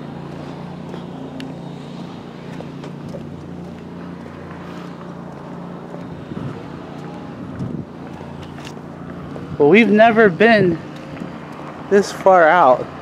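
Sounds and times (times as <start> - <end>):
low motor hum: 0.0 - 13.0
wind on microphone: 6.0 - 8.4.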